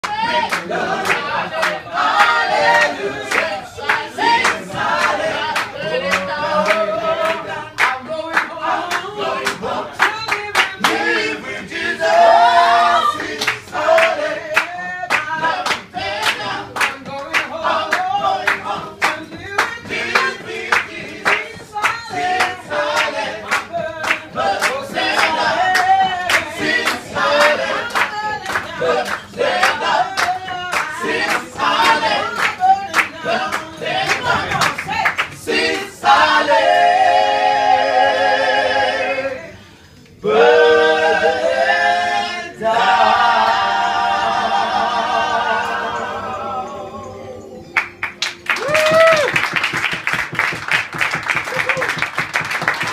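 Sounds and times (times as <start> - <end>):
hand-clapping: 0.0 - 11.3, 13.1 - 36.3, 47.8 - 52.9
group of people singing: 0.0 - 48.6.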